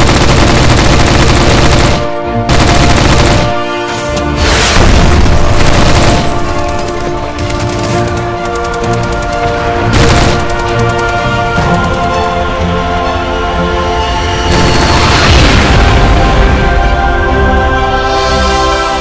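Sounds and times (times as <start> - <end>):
rapid machine-gun fire: 0.0 - 3.8, 4.9 - 12.6, 14.5 - 15.3
background music: 0.0 - 19.0.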